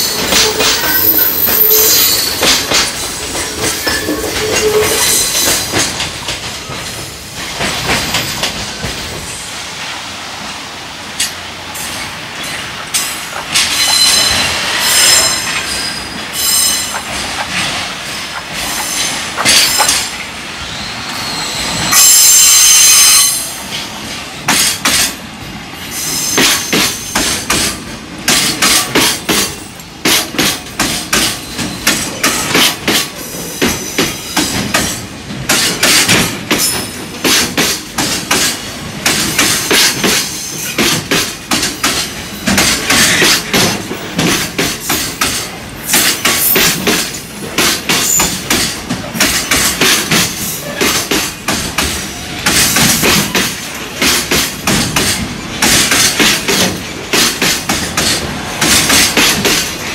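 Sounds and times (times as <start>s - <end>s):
high wheel screech: 0.0s - 2.6s
train wheels clacking over rail joints: 0.0s - 10.0s, 11.1s - 20.4s, 21.6s - 59.9s.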